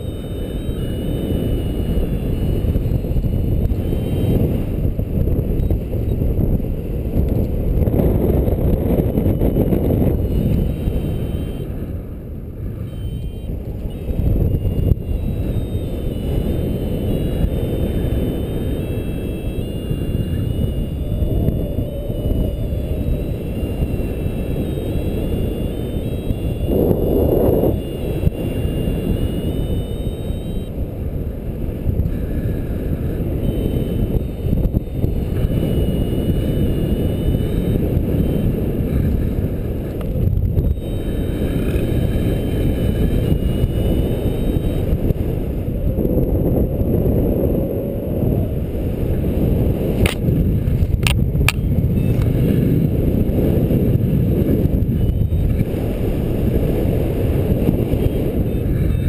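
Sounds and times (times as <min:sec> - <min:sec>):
wind buffeting microphone: 0:00.0 - 0:59.0
sharp clicks: 0:50.0 - 0:50.2.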